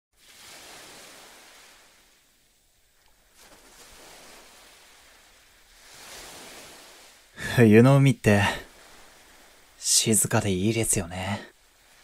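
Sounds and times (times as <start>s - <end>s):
sea waves washing on shore: 0.2s - 12.0s.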